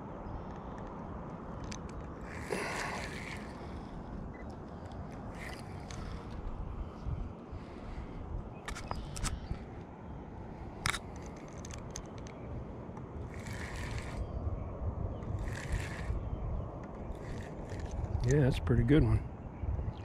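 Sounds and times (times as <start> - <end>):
wind rumble on microphone: 0.0 - 20.0
fishing reel clicks and scrapes: 1.7 - 3.8, 5.3 - 6.4, 10.8 - 12.3, 13.3 - 14.3, 15.2 - 16.2, 17.1 - 18.3.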